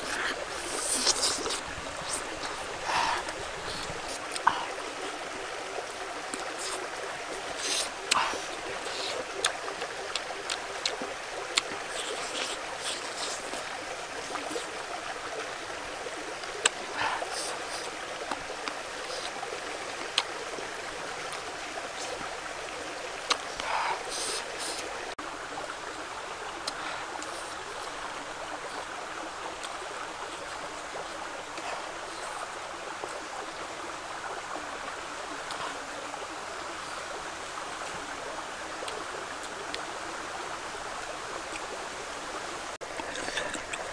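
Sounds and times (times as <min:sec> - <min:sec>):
small river rushing: 0:00.0 - 0:43.9
chewing smacks and clicks: 0:23.2 - 0:23.7.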